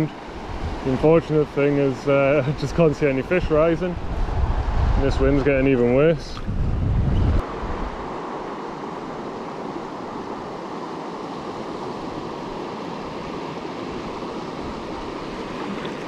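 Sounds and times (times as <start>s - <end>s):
river water rushing: 0.0s - 3.2s, 7.4s - 16.0s
wind: 0.0s - 16.0s.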